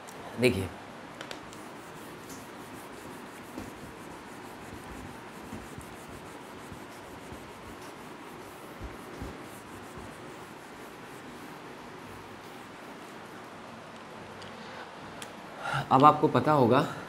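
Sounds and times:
duster rubbing on whiteboard: 1.5s - 14.1s.

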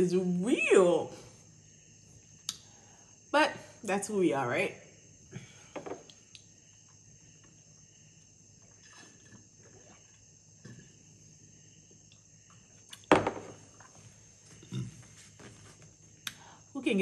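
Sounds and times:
sipping through a straw: 8.8s - 10.2s
glass jar knocking on table: 13.1s - 13.6s.

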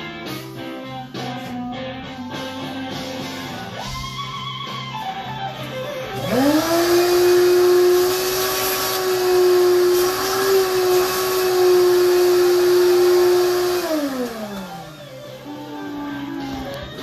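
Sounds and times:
shop vacuum running: 5.6s - 17.0s
vacuum motor winding down: 6.0s - 17.0s.

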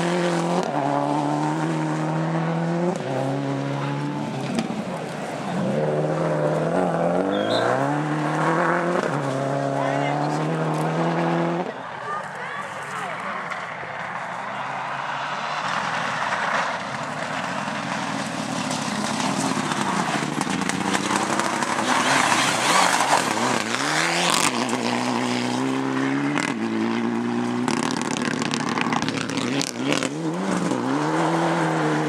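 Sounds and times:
car engine accelerating hard: 0.0s - 12.0s, 13.5s - 32.0s.

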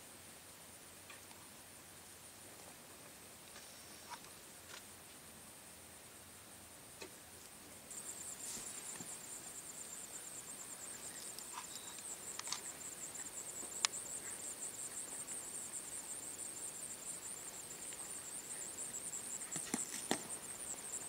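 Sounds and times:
insects trilling: 7.0s - 21.0s.

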